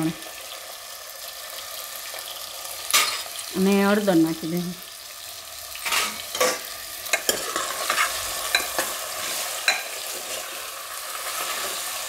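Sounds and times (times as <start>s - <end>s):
potatoes sizzling in hot oil: 0.0s - 12.0s
spoon clacking against pot: 5.9s - 9.0s, 9.6s - 10.0s.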